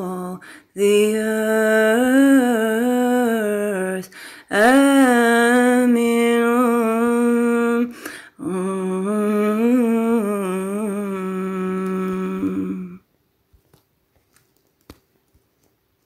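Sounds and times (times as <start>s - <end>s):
woman breathing: 0.4s - 0.8s, 4.0s - 4.5s, 7.9s - 8.4s
woman humming: 6.0s - 13.0s.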